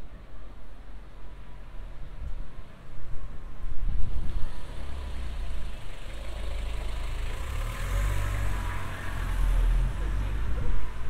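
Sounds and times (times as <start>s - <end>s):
vehicle engine rumbling: 4.0s - 11.0s.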